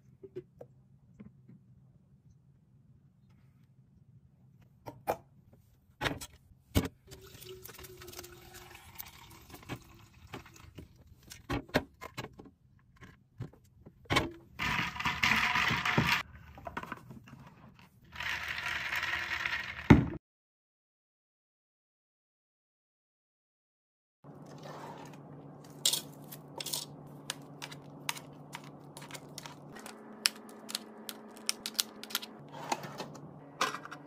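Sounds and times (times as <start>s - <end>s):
ice rattling in plastic tumbler: 14.6s - 16.2s.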